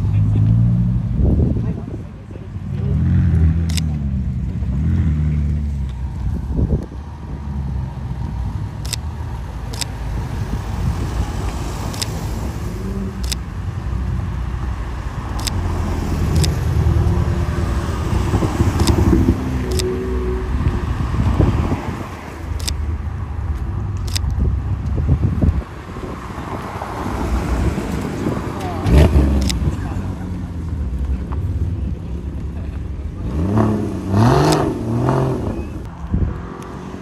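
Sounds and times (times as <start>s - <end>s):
car engines accelerating: 0.0s - 37.0s
cars driving past: 0.0s - 37.0s
sharp clicks: 3.6s - 3.9s, 8.8s - 9.1s, 9.7s - 10.0s, 11.5s - 12.2s, 13.2s - 13.4s, 15.3s - 15.6s, 16.3s - 16.6s, 18.7s - 19.9s, 22.6s - 22.8s, 23.9s - 25.0s, 29.3s - 29.6s.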